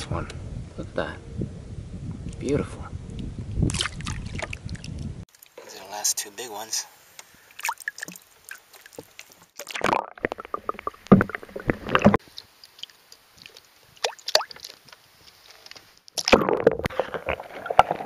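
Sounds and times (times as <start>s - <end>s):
water splashing in a bucket: 3.7s - 5.6s, 7.5s - 14.8s
water dripping: 7.1s - 15.0s
underwater rush of water: 7.5s - 14.8s.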